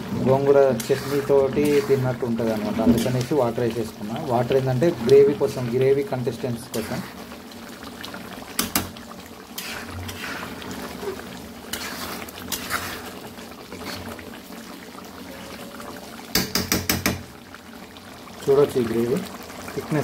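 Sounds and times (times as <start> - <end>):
gravy sloshing in a pan: 0.0 - 20.0
ladle scraping and knocking pan: 0.3 - 3.4, 9.6 - 14.1.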